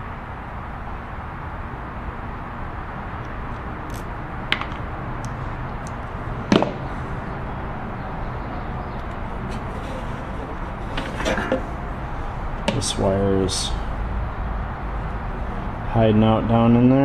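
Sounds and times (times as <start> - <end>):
wire cutters snapping: 3.8 - 6.6.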